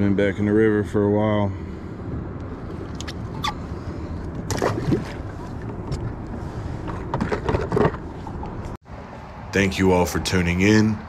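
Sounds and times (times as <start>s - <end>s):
wind: 0.0s - 11.0s
water around a kayak: 1.6s - 9.4s
knocks and splashes: 4.4s - 6.2s.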